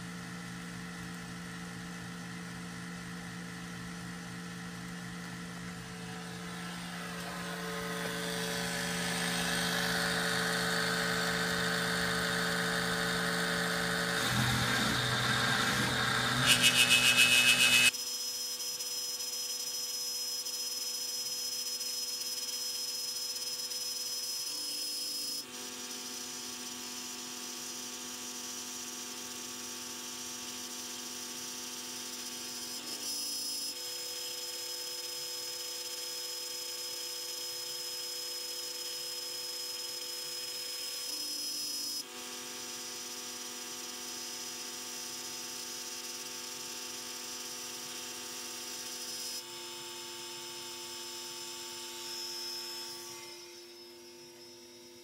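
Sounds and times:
motor hum: 0:03.0 - 0:17.9
router spindle high whine: 0:05.5 - 0:55.0.

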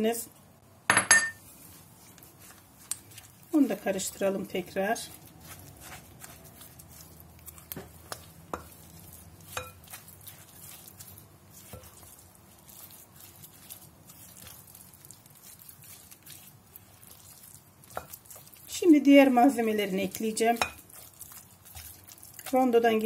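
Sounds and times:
spatula scraping thick mixture: 0:01.5 - 0:23.0.

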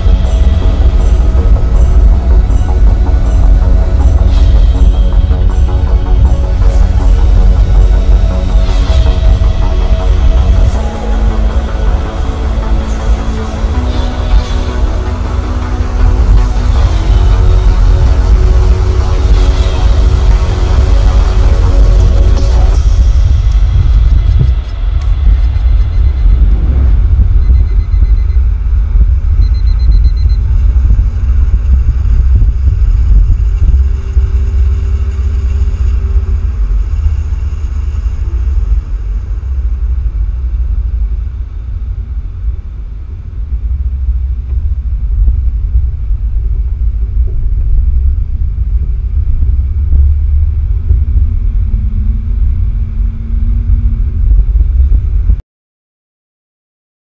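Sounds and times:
faint steady hum: 0:00.0 - 0:55.4
heavy wind: 0:00.0 - 0:55.4
road rumble: 0:00.0 - 0:55.4.

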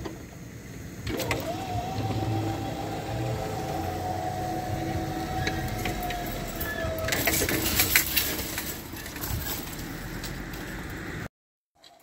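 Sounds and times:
barrier drive whining: 0:01.0 - 0:11.3
barrier gear clicks and clatter: 0:05.4 - 0:11.0.

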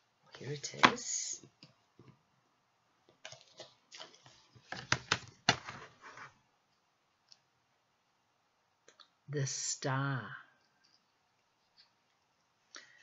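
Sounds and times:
paper rustling and clicking: 0:03.2 - 0:06.3.

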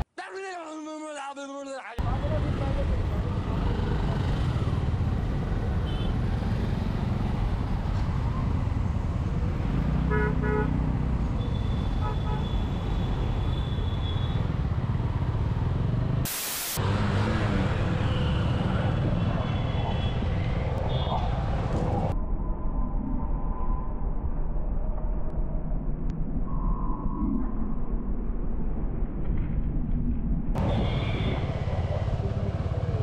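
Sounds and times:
engine and traffic rumble: 0:02.0 - 0:22.2, 0:28.8 - 0:33.0
vehicle horns honking: 0:10.1 - 0:10.8, 0:11.4 - 0:14.4
short burst of hiss: 0:16.3 - 0:16.8.

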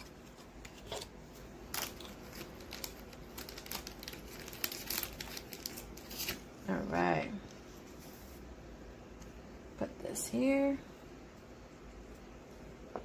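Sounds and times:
plastic packaging crinkling: 0:00.0 - 0:06.6.

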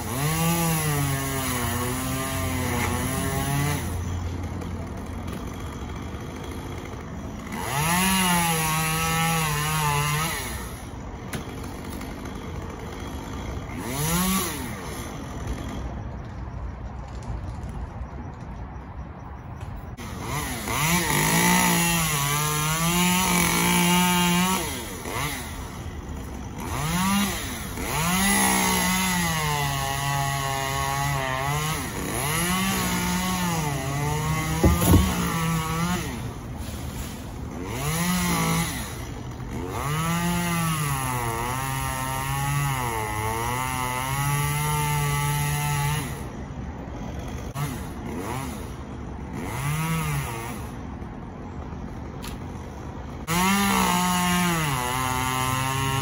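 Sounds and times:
chainsaw revving: 0:00.0 - 0:16.1, 0:20.0 - 0:46.3, 0:47.0 - 0:50.8, 0:53.2 - 0:56.0
sharp knock: 0:34.6 - 0:35.2.

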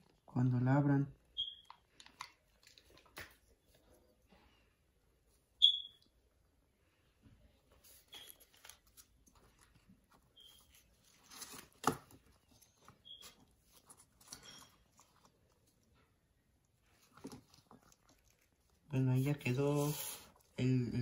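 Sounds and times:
cardboard and sticks rustling: 0:07.6 - 0:16.1, 0:16.8 - 0:20.5.

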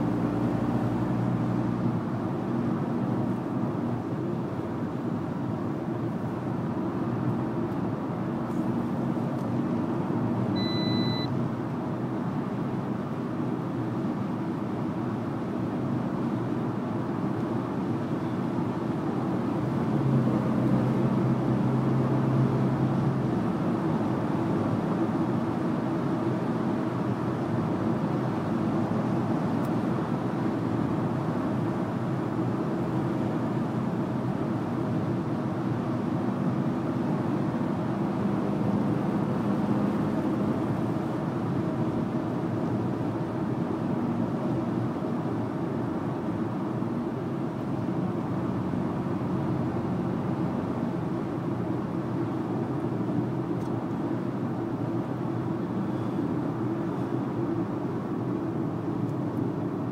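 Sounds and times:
car engine drone: 0:00.0 - 0:59.9
short beep: 0:10.6 - 0:11.4.

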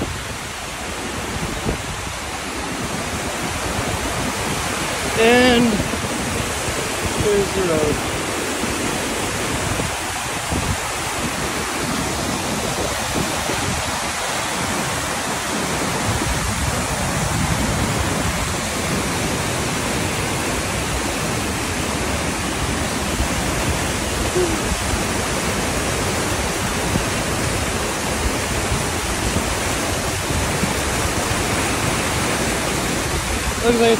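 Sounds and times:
water rushing over rocks: 0:00.0 - 0:33.9.

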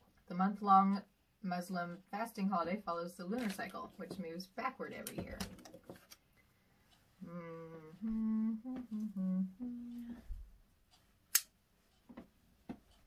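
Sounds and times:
person humming a tune: 0:07.2 - 0:10.4.

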